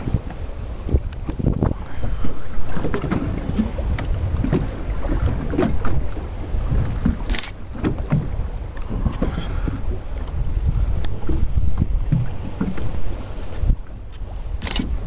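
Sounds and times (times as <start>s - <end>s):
water slapping boat hull: 0.0s - 15.0s
wind buffeting microphone: 0.0s - 15.0s.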